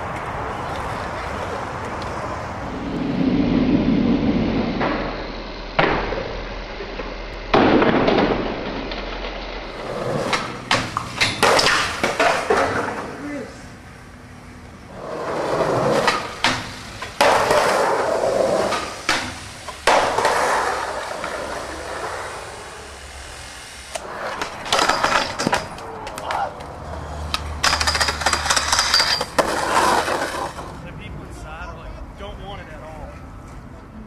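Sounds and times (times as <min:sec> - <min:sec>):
skateboard wheels rolling: 0:00.0 - 0:30.9
skateboard clacks: 0:09.7 - 0:13.2, 0:15.0 - 0:22.4, 0:24.0 - 0:30.8.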